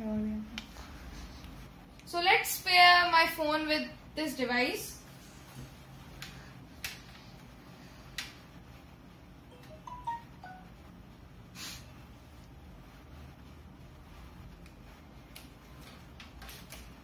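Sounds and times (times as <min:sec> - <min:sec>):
electronic chime: 0:09.5 - 0:10.7.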